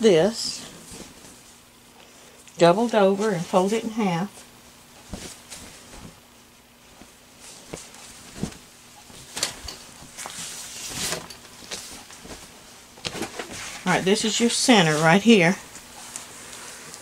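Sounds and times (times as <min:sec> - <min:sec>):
fabric rustling and swishing: 0:00.7 - 0:01.6, 0:05.0 - 0:06.2, 0:06.8 - 0:14.1.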